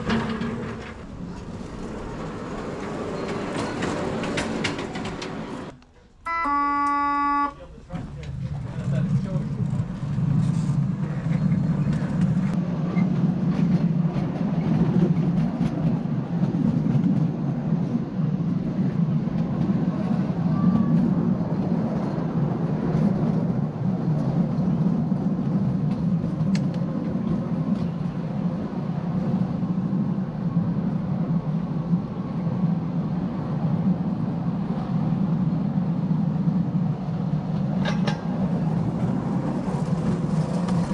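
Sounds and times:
miniature train rolling rumble: 0.0 - 6.2, 7.6 - 30.4, 36.8 - 40.9.

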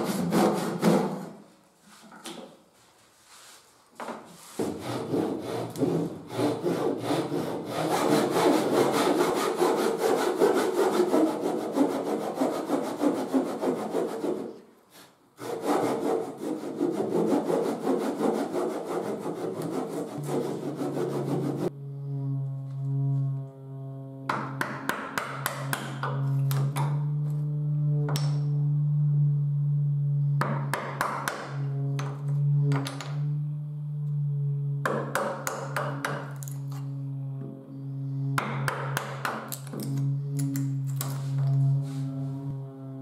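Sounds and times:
hand saw rasping through wood: 0.0 - 1.4, 4.4 - 14.6, 15.4 - 21.7.

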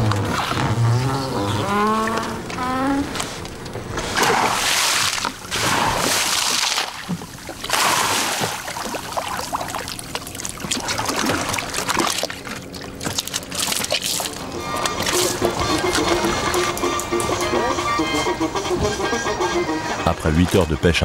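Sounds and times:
water splashing and streaming: 4.0 - 16.9.

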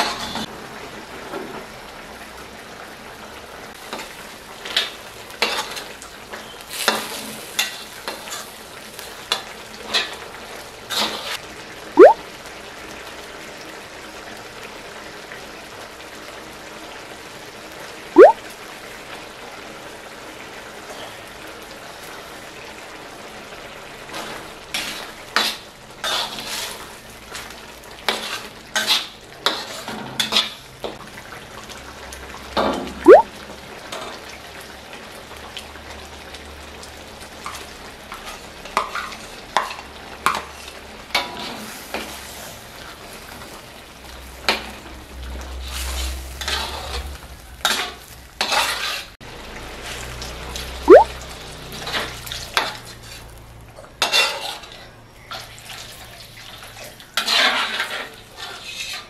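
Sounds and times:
metal spatula scraping wok: 45.6 - 49.2, 57.2 - 59.0.

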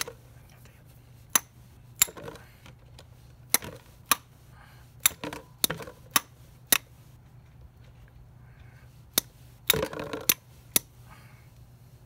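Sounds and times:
tapping on metal wrench: 1.3 - 2.4.

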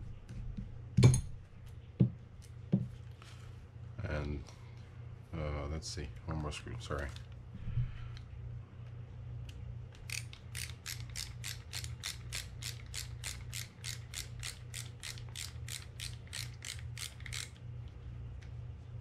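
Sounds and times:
screwdriver ratchet clicking: 10.0 - 17.6.

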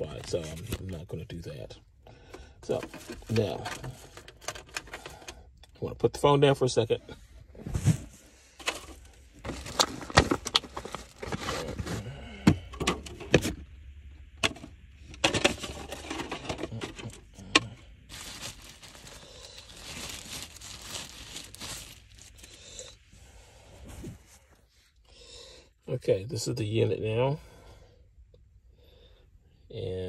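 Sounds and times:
packaging rustling and crinkling: 0.0 - 1.0, 2.7 - 5.1, 7.8 - 12.1, 15.3 - 23.0.

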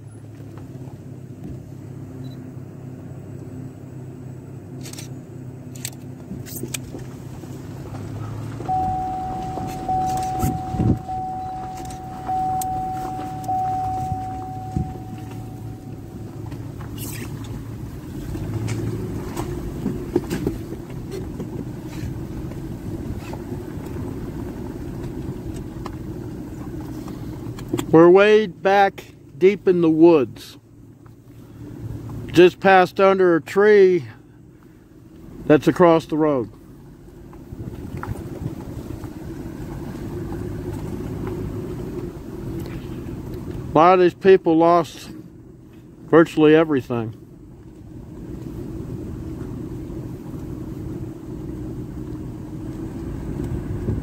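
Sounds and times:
vehicle engine and road hum: 0.0 - 54.0
thin high tone: 8.6 - 16.6.

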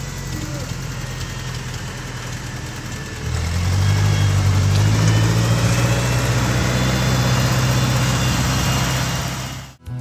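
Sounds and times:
tractor driving over gravel: 0.0 - 10.0
tractor engine running: 0.0 - 10.0.

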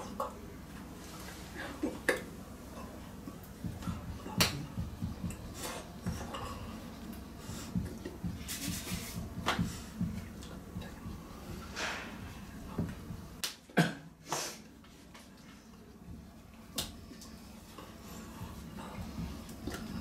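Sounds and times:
low room rumble: 0.0 - 13.5, 14.1 - 20.0
hands slapping and brushing: 8.1 - 10.6.

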